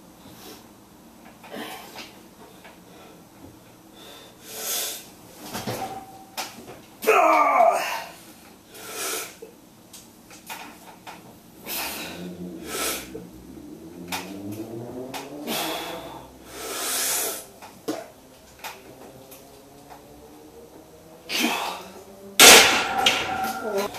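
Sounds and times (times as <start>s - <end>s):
man groaning with strain: 7.0s - 8.1s
man breathing hard: 11.6s - 13.1s, 15.4s - 17.5s.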